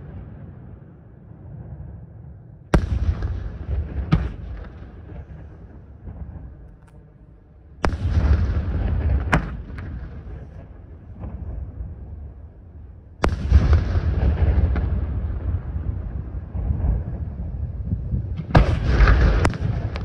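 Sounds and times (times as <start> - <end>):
sharp firework crack: 2.7 - 7.0, 7.8 - 11.6, 13.2 - 15.8, 18.4 - 20.0
firework shells booming: 2.7 - 12.6, 13.2 - 20.0.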